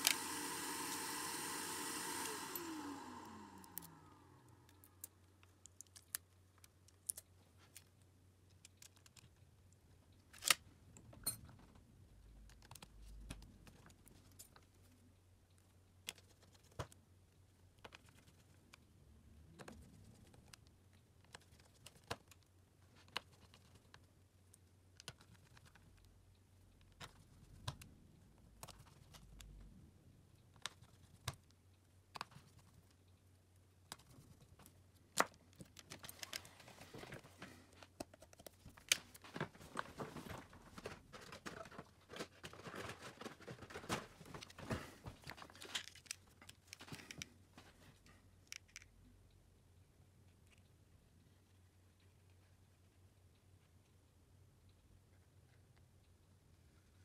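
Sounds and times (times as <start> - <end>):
faint low hum: 0.0 - 57.0.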